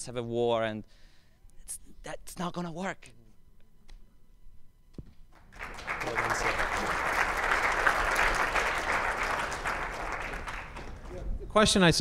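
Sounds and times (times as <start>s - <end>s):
audience applauding: 5.5s - 11.3s.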